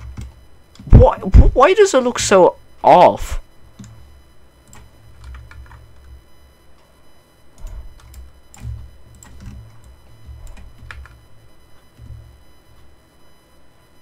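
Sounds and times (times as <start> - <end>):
keyboard and mouse clicks: 7.6 - 11.2.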